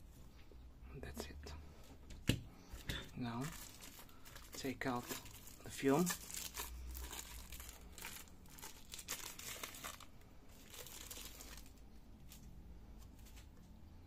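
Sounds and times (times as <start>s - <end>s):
thin plastic crinkling: 2.7s - 13.5s.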